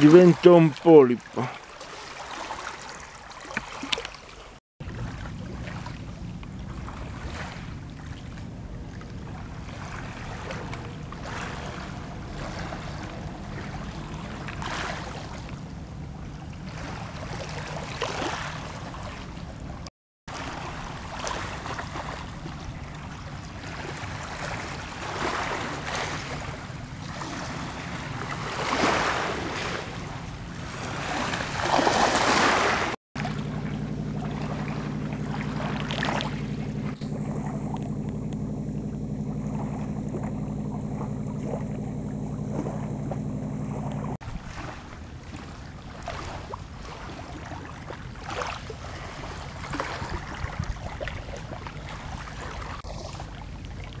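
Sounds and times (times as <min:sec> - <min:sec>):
waves lapping on rocky shore: 0:00.0 - 0:54.0
steady low rumble: 0:04.8 - 0:16.7, 0:33.2 - 0:44.2.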